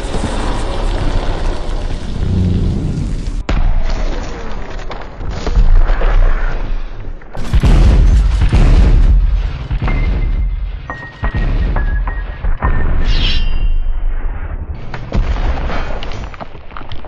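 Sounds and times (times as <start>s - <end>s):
slowed gunfire booms: 7.4s - 12.1s.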